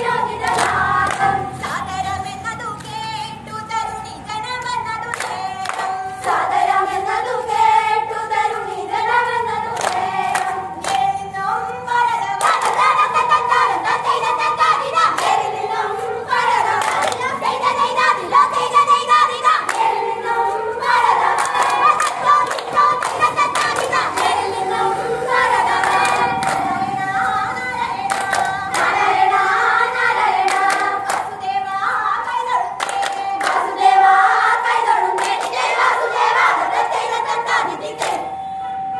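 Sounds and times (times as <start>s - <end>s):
group singing folk song: 0.0s - 38.9s
sharp hand claps: 0.4s - 1.3s, 5.0s - 6.4s, 9.8s - 11.1s, 12.4s - 12.8s, 16.8s - 17.3s, 21.4s - 24.4s, 25.8s - 26.7s, 28.1s - 28.9s, 30.5s - 31.3s, 32.8s - 33.6s, 38.0s - 38.3s.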